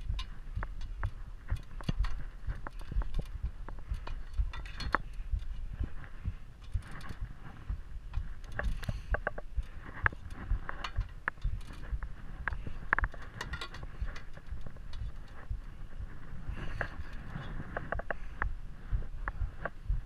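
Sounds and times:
crampons clanking on metal rungs: 0.0s - 5.6s, 12.6s - 15.4s
carabiners clinking: 0.0s - 15.5s
steady low rumble: 0.0s - 20.0s.

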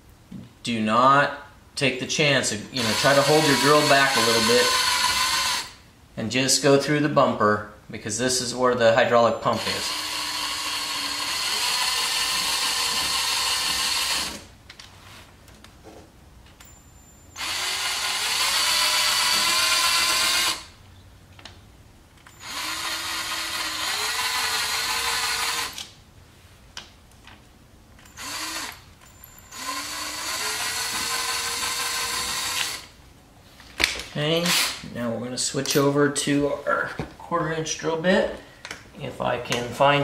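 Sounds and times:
cordless drill boring plastic: 2.8s - 5.7s, 9.6s - 14.4s, 17.4s - 20.7s, 22.4s - 25.9s, 28.2s - 28.8s, 29.5s - 32.9s.

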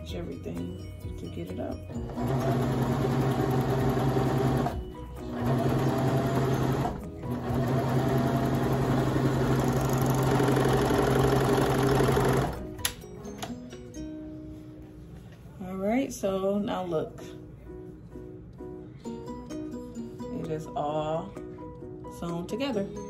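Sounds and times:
serger stitching fabric: 2.0s - 12.6s.

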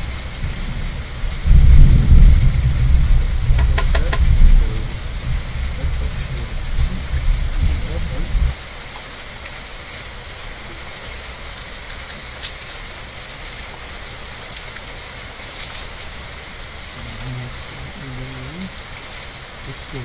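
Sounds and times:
steady rain falling: 0.0s - 20.0s
sharp ticks: 3.5s - 4.4s
low voice murmuring: 3.6s - 8.5s, 16.9s - 18.9s, 19.6s - 20.0s.

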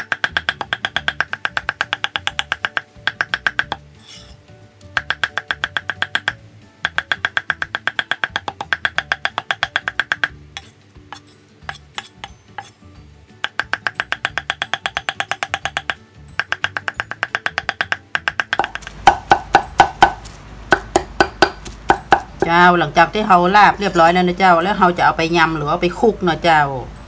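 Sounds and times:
cleaver chopping on wooden block: 0.0s - 4.2s, 4.8s - 12.7s, 13.4s - 22.6s.

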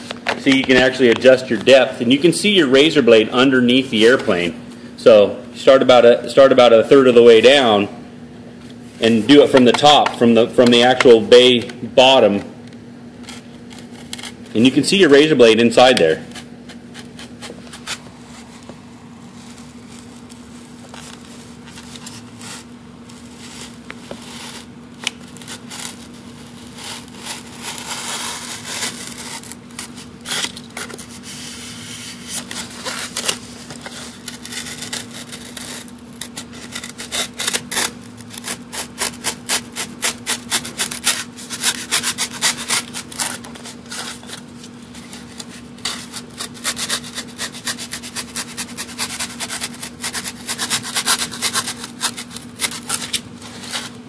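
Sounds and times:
knife sawing through foam: 21.8s - 24.7s, 25.3s - 54.0s.

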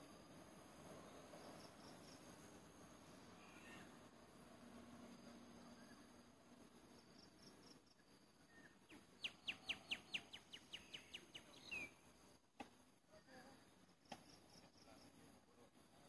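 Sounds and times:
insect hum: 0.0s - 16.0s.

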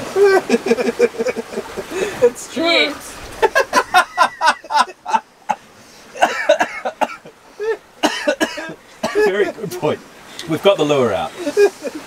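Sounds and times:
person laughing: 0.1s - 2.4s, 3.4s - 5.6s, 11.4s - 12.0s.

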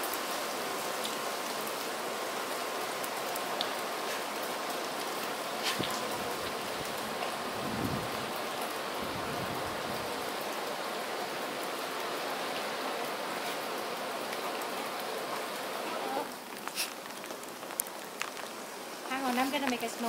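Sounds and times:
snow pattering hiss: 3.0s - 10.7s, 15.4s - 20.0s
tiny ticks: 16.6s - 18.5s.

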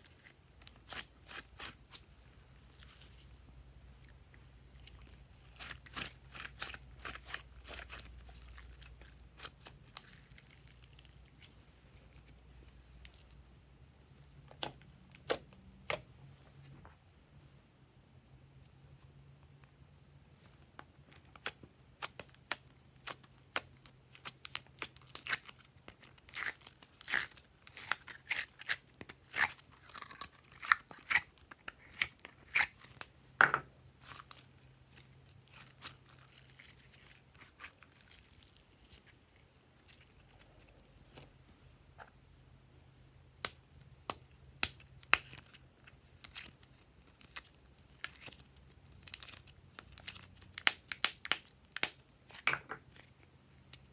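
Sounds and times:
slime popping and crackling: 21.1s - 33.1s, 43.4s - 53.0s.

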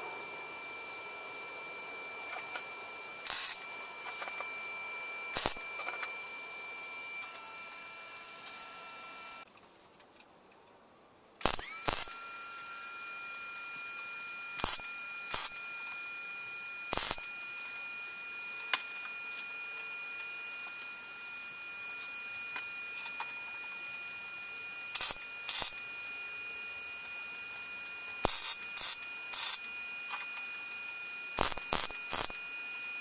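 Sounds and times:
high-pitched whine: 0.0s - 9.4s, 11.4s - 33.0s
welding bursts: 2.2s - 4.4s, 5.3s - 6.1s, 11.4s - 12.2s, 14.6s - 15.6s, 16.9s - 17.3s, 24.9s - 25.9s, 28.2s - 29.7s, 31.3s - 32.5s.

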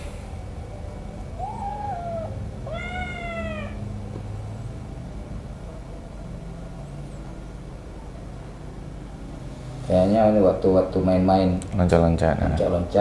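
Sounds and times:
kitten meowing: 1.4s - 3.9s.

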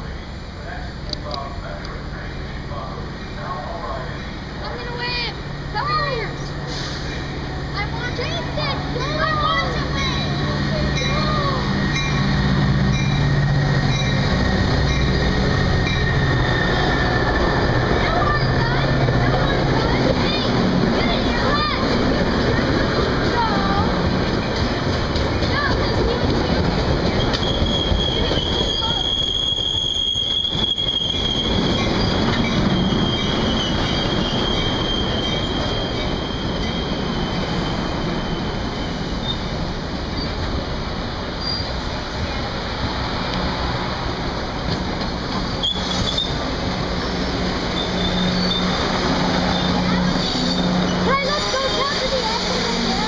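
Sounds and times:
diesel locomotive engine: 0.0s - 53.0s
train wheels clicking over rail joints: 6.6s - 37.6s, 41.6s - 53.0s
high-pitched wheel squeal: 27.2s - 40.4s, 41.4s - 41.8s, 45.4s - 46.4s, 47.0s - 48.8s, 49.4s - 53.0s.

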